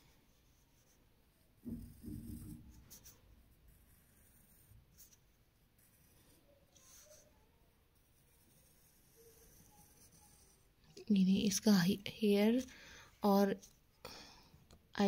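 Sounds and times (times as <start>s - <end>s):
pencil scratching on paper: 0.0s - 10.8s.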